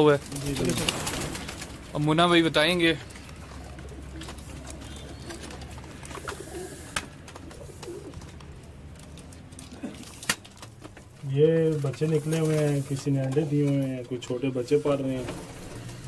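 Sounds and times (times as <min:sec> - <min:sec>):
pigeons cooing softly: 0:03.0 - 0:10.2.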